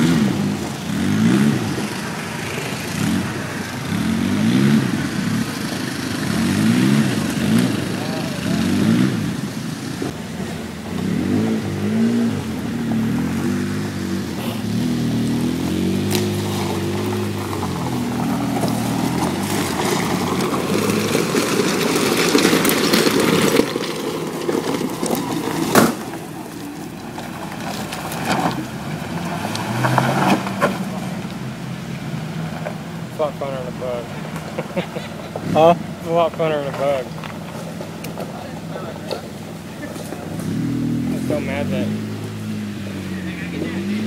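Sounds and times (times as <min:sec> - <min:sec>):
engine revving: 0:00.0 - 0:44.0
tyres over loose rock: 0:11.0 - 0:44.0.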